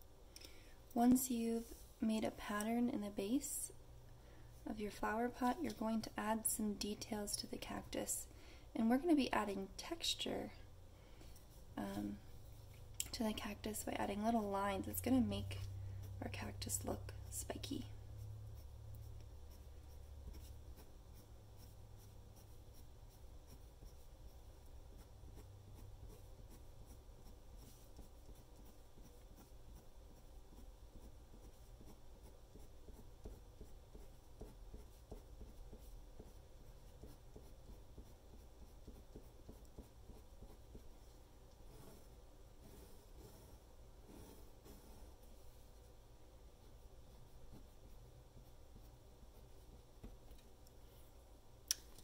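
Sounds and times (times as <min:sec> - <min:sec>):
pen scratching on paper: 0:13.6 - 0:40.9, 0:41.7 - 0:45.2.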